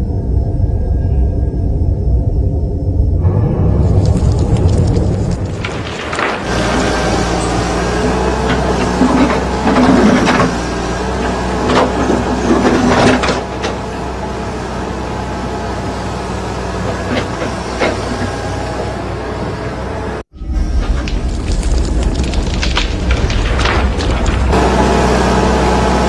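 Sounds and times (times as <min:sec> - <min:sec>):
excavator engine droning: 0:00.0 - 0:26.0.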